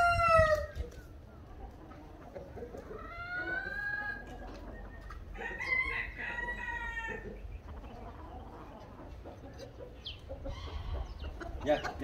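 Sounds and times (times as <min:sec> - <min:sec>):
rooster crowing: 0:05.3 - 0:07.2.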